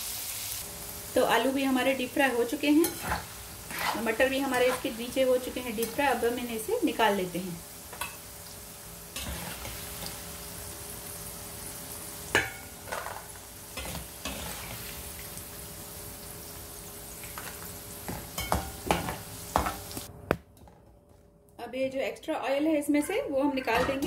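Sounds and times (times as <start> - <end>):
food deep-frying in oil: 0.0 - 20.1
skimmer scraping a pan: 2.8 - 5.1, 9.2 - 10.1, 13.8 - 15.0.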